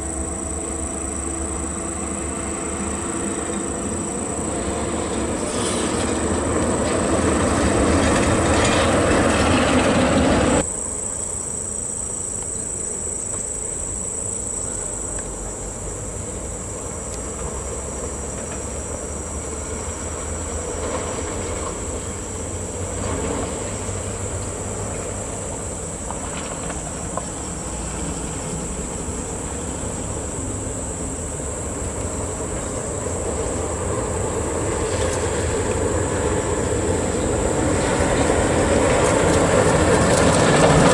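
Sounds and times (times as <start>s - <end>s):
high-pitched insect drone: 0.0s - 10.0s, 10.6s - 23.0s
heavy trucks rumbling by: 0.0s - 10.7s, 13.7s - 40.9s
trailers rattling: 0.2s - 10.6s, 32.0s - 40.9s.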